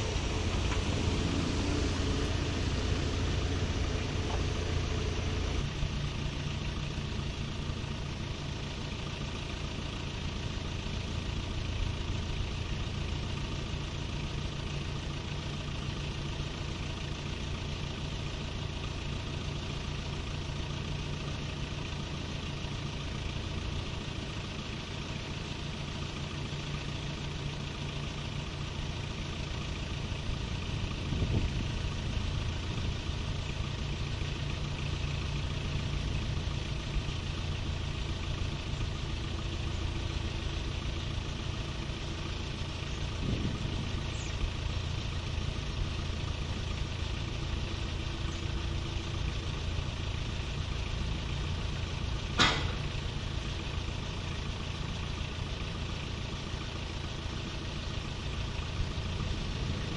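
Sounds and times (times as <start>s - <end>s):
diesel engine running: 0.0s - 59.9s.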